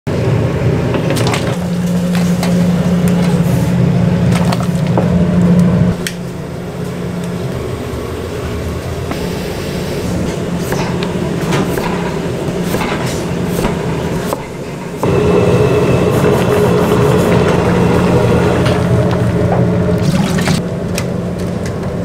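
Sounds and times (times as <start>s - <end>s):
gas stove rushing hum: 0.1s - 22.0s
knocks and splashes in water: 19.9s - 20.6s.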